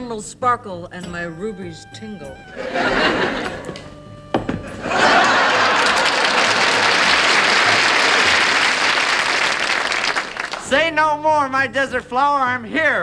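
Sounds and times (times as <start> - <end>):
audience applauding: 4.9 - 10.8.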